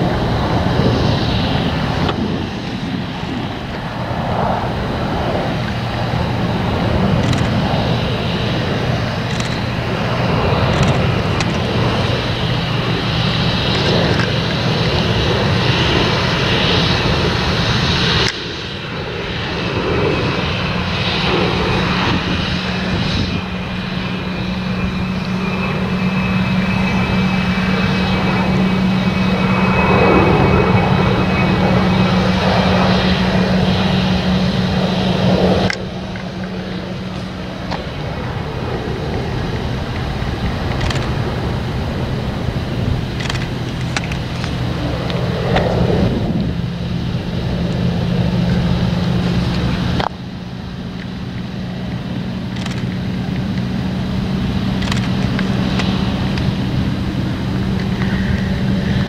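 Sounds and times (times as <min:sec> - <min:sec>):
engine drone: 0:00.0 - 0:59.0
thin high whine: 0:18.2 - 0:59.0.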